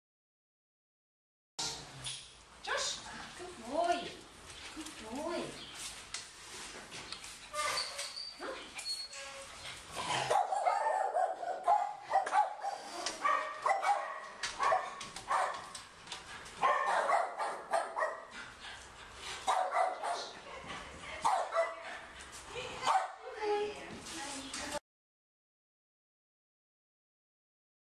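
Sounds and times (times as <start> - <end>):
dogs barking: 10.0 - 15.8, 16.6 - 18.4, 19.4 - 20.4, 21.2 - 22.1, 22.8 - 23.2.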